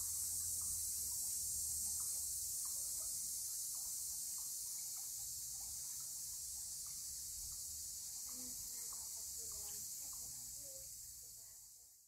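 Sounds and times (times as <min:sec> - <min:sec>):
high-pitched insect chorus: 0:00.0 - 0:12.0.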